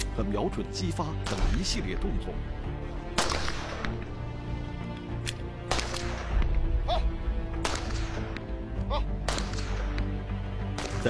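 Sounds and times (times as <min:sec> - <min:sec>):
background music: 0:00.0 - 0:11.0
pistol shots with echo: 0:01.2 - 0:01.8, 0:03.2 - 0:04.0, 0:05.6 - 0:06.4, 0:07.6 - 0:08.4, 0:09.2 - 0:10.0, 0:10.6 - 0:11.0.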